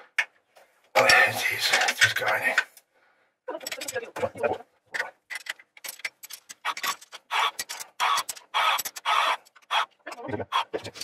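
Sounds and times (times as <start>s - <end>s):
spanner clicking on bolts: 5.3s - 9.7s.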